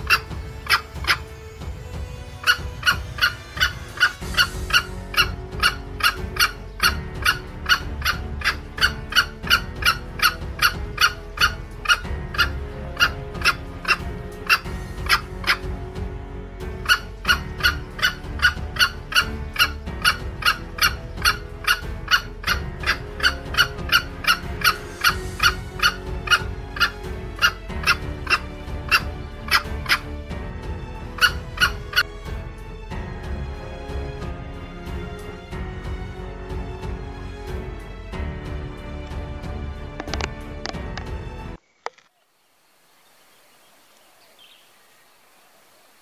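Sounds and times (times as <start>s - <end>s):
jungle fowl clucking: 0.0s - 1.4s, 2.3s - 16.0s, 16.7s - 30.3s, 31.0s - 32.1s
music playing: 0.0s - 41.6s.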